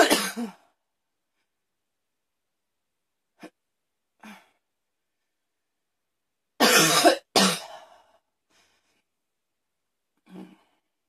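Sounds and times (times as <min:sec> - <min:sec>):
woman coughing: 0:00.0 - 0:00.6, 0:06.6 - 0:07.8
faint breath: 0:07.7 - 0:09.1.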